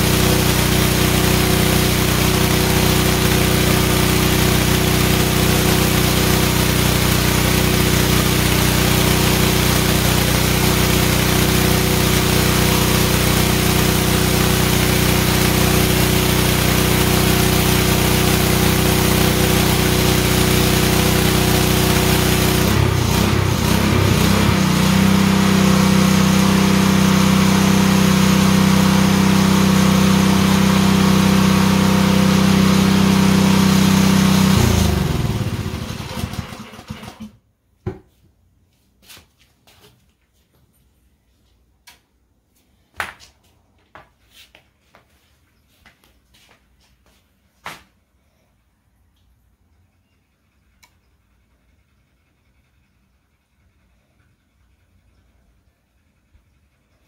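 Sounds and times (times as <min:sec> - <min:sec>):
pressure washer engine running: 0:00.0 - 0:37.3.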